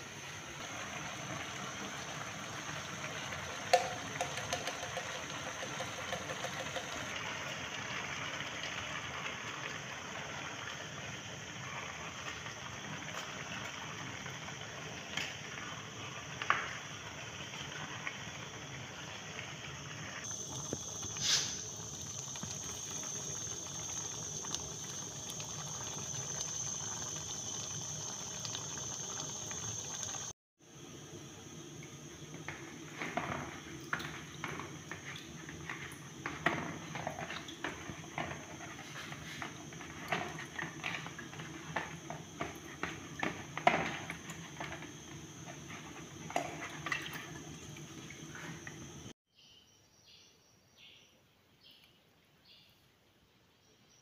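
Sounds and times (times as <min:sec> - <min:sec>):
pot simmering with bubbling hiss: 0:00.0 - 0:49.2
spoon knocking against metal pot: 0:03.7 - 0:05.2.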